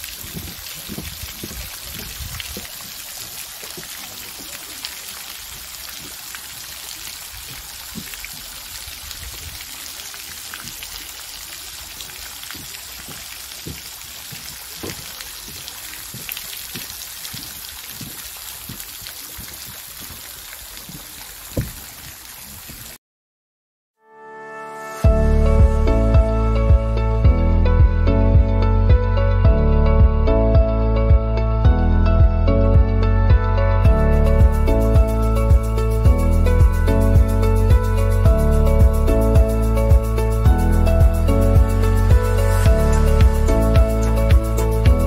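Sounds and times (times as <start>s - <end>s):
fountain water splashing: 0.0s - 23.0s, 33.9s - 45.0s.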